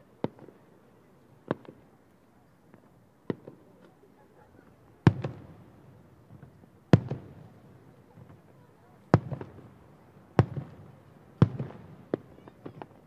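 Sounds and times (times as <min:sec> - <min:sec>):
distant firework booms: 0:05.0 - 0:05.6, 0:06.3 - 0:07.6, 0:09.1 - 0:13.0.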